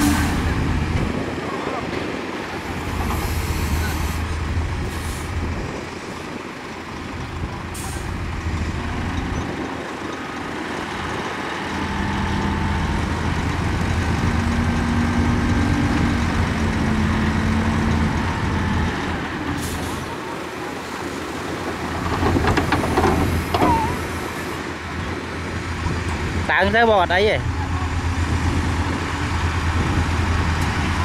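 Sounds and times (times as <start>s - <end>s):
heavy diesel engines running: 0.0s - 31.0s.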